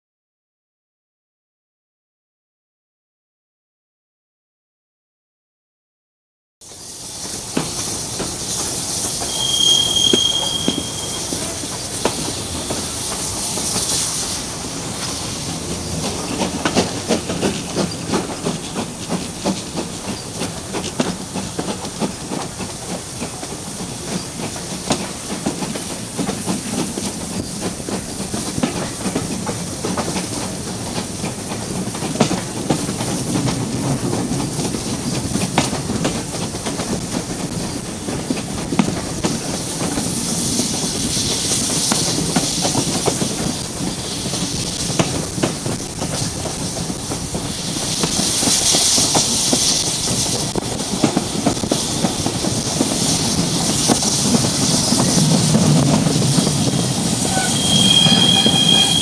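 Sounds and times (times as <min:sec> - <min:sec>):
train wheels clattering over rail joints: 0:14.9 - 0:59.0
steady rushing noise: 0:47.2 - 0:59.0.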